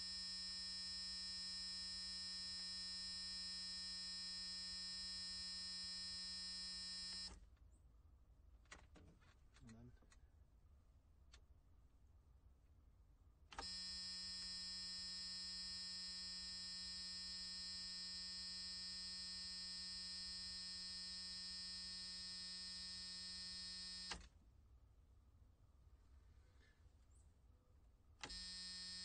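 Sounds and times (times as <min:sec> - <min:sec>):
electric buzzer buzzing: 0:00.0 - 0:07.4, 0:13.6 - 0:24.2, 0:28.2 - 0:29.0.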